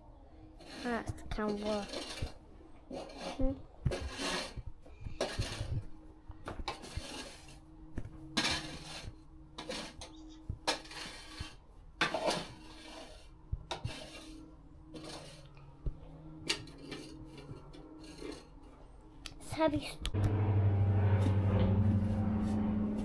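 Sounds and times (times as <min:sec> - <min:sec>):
plastic rake scraping shavings: 0:00.6 - 0:04.6, 0:05.2 - 0:05.9, 0:06.7 - 0:07.6, 0:08.4 - 0:15.6.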